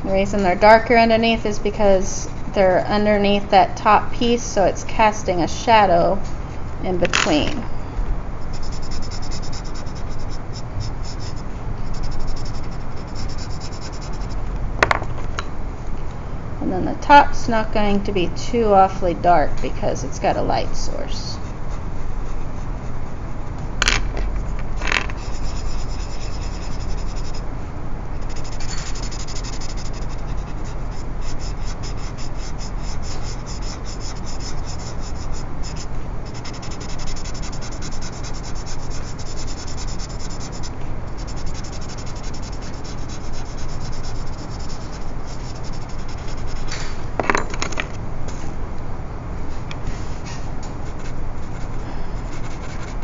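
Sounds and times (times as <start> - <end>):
pencil shading on paper: 25.2 - 27.4, 28.2 - 46.7.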